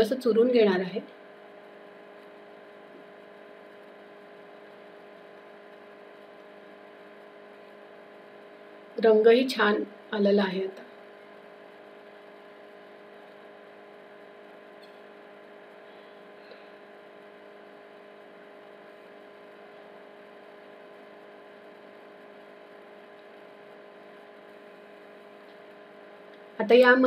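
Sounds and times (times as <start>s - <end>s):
low electrical hum: 0.0s - 27.0s.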